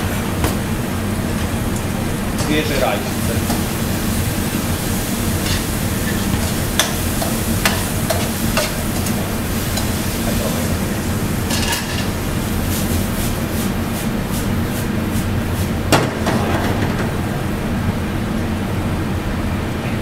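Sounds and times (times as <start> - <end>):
food sizzling in a wok: 2.3 - 16.2
low hum: 15.8 - 20.0.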